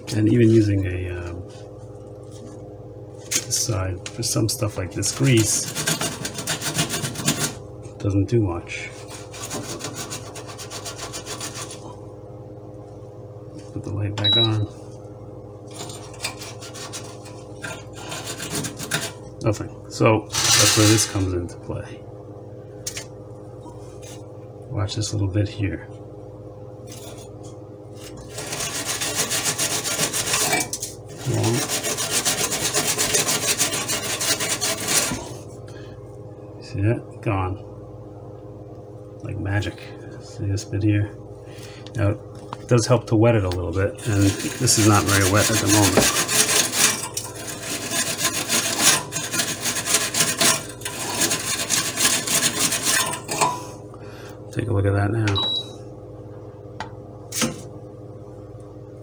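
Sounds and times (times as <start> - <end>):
metal scouring pad rasping on metal: 5.1 - 7.6, 9.0 - 11.9, 15.8 - 19.2, 28.3 - 35.3, 44.0 - 53.6.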